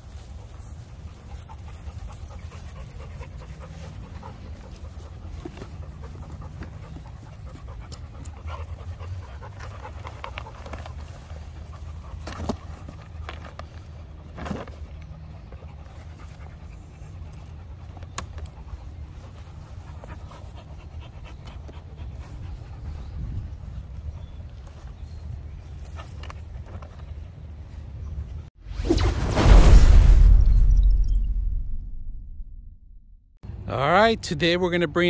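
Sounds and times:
dog panting: 0.3s - 27.3s.

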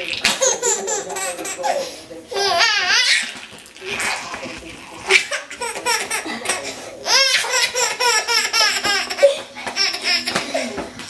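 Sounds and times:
baby laughing: 0.2s - 11.0s
baby squealing: 5.1s - 10.7s.

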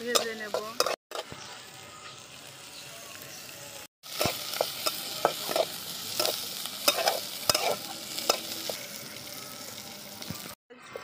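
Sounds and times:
food sizzling in oil: 0.0s - 10.6s
metal spatula scraping metal pan: 4.1s - 8.9s.

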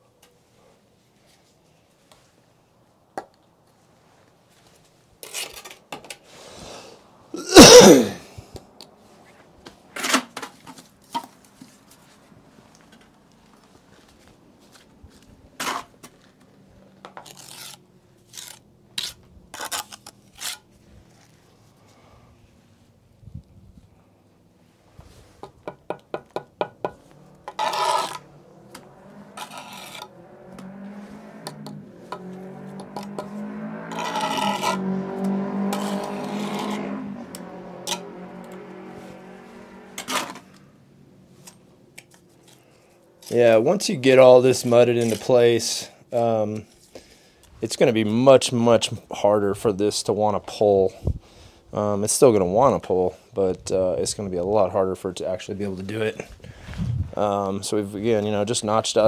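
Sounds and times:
mortar scraping: 5.2s - 5.8s, 17.1s - 21.4s, 26.2s - 30.1s, 33.9s - 34.9s, 35.7s - 36.8s
intake of breath: 6.3s - 7.1s, 21.7s - 22.6s, 46.8s - 47.6s, 51.1s - 51.7s, 56.4s - 57.0s
man coughing: 7.4s - 8.4s
brick scraping and knocking: 25.4s - 28.2s.

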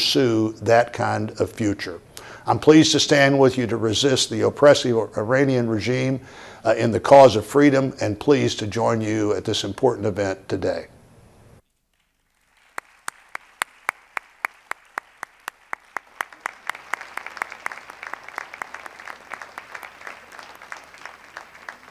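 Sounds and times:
audience applause: 12.2s - 21.9s
person clapping: 12.3s - 21.9s.

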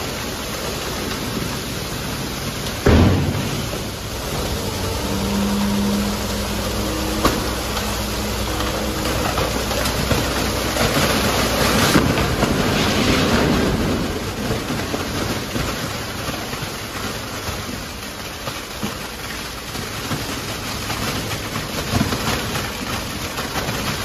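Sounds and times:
wet garbage pouring into pit: 0.0s - 24.0s
truck engine humming: 0.1s - 15.3s.

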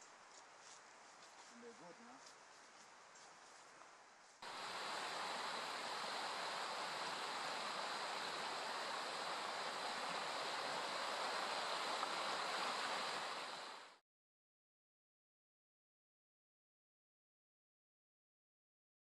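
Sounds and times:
stream rushing over stones: 4.4s - 14.0s.

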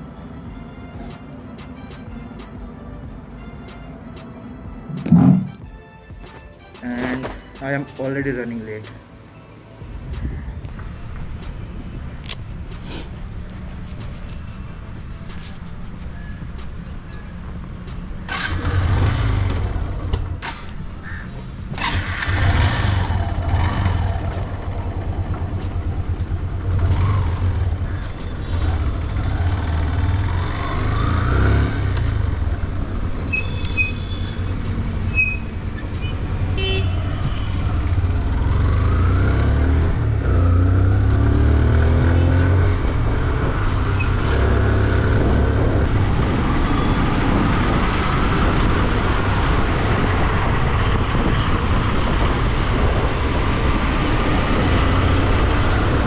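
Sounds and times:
motorcycle engine revving: 18.2s - 20.7s, 21.7s - 56.0s.

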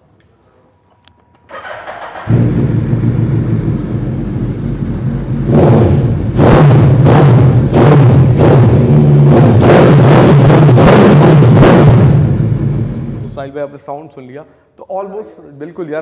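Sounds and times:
motorcycle engine idling and revving: 1.5s - 13.4s.

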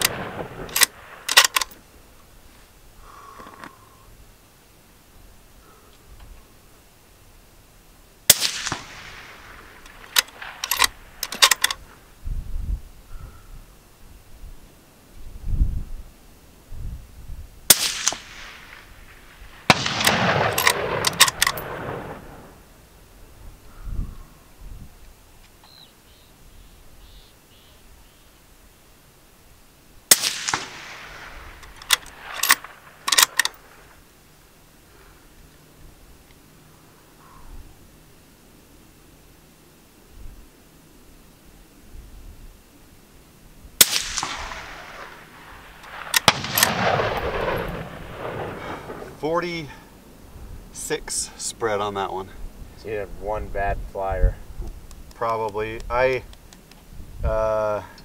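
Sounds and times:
rifle bolt metallic clicks: 0.0s - 1.8s, 9.8s - 11.8s, 19.7s - 21.8s, 31.6s - 33.6s, 45.8s - 47.7s
rifle shot with echo: 0.0s - 1.8s, 8.3s - 11.8s, 17.7s - 22.6s, 30.1s - 34.0s, 43.8s - 49.9s.

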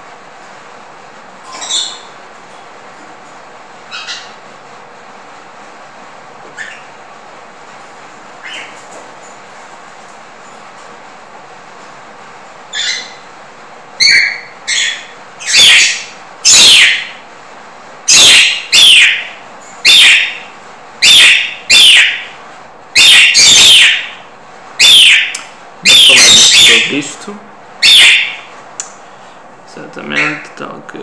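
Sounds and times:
bird calling harshly: 1.5s - 2.2s, 3.9s - 4.4s, 6.6s - 6.9s, 8.4s - 8.8s, 12.7s - 13.3s, 14.0s - 17.2s, 18.0s - 22.4s, 23.0s - 24.2s, 24.8s - 27.1s, 27.8s - 28.5s.

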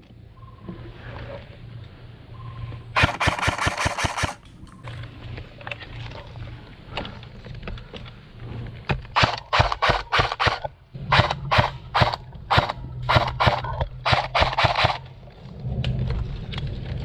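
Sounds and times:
airsoft gun shots: 3.0s - 4.4s, 9.2s - 15.0s.

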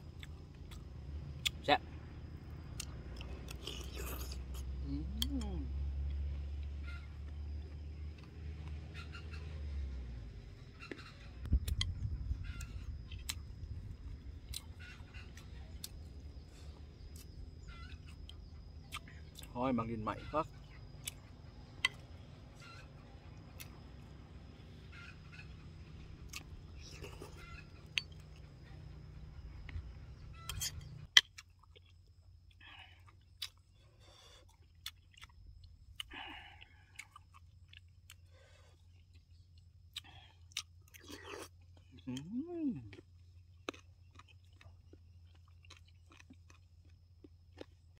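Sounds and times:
man chewing with wet smacking: 0.0s - 1.6s, 10.9s - 19.5s, 26.2s - 47.9s
person slurping and chewing: 3.5s - 4.6s.

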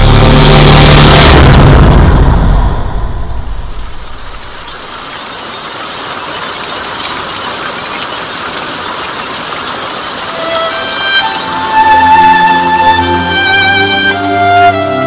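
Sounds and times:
low boom rumble: 0.0s - 4.8s.

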